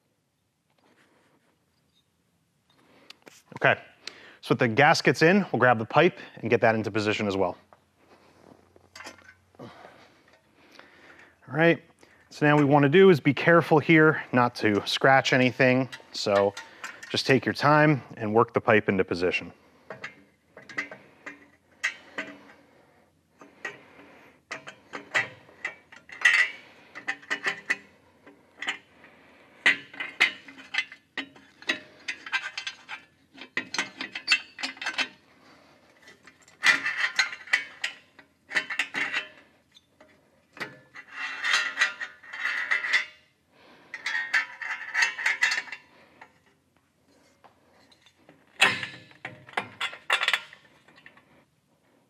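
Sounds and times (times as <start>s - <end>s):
metal clinks and knocks: 19.8s - 22.6s, 29.6s - 43.2s, 43.8s - 46.5s, 47.2s - 51.3s.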